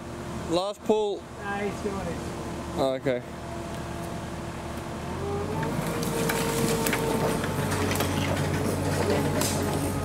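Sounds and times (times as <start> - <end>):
loader engine whining under load: 1.2 - 10.0
sticks and brush snapping: 5.8 - 9.8.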